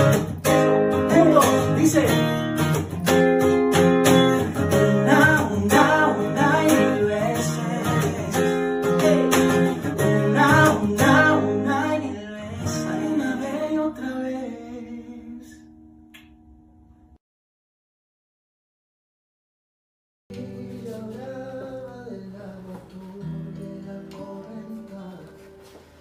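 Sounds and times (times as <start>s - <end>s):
acoustic guitar strumming: 0.0s - 17.0s, 20.3s - 26.0s
two men singing: 4.6s - 15.5s.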